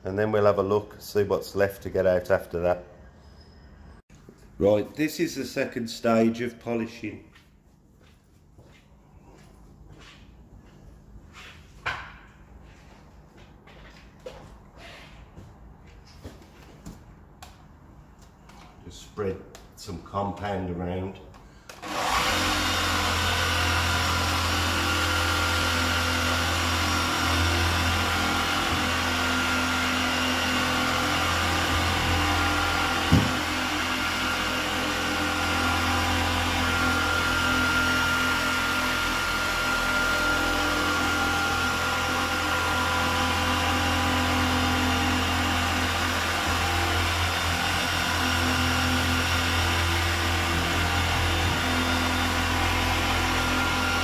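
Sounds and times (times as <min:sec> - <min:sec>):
orbital polisher whirring: 0:21.7 - 0:54.0.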